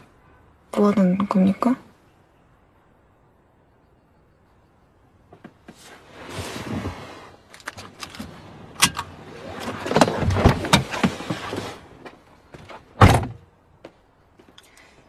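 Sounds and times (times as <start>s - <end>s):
rustling inside a car: 5.3s - 13.4s.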